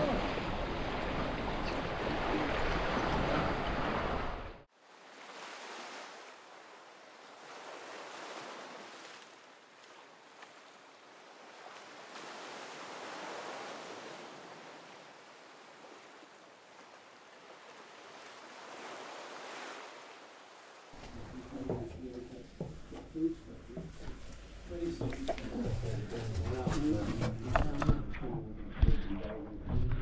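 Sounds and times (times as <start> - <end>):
sea waves washing in: 0.0 - 21.8.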